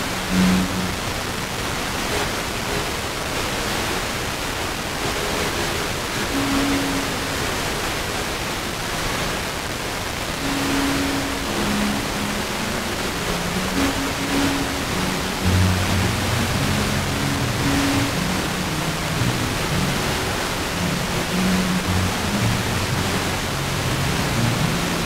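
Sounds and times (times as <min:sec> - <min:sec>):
faint classical music: 0:00.0 - 0:09.5, 0:10.3 - 0:25.0
radio static hiss: 0:00.0 - 0:25.0.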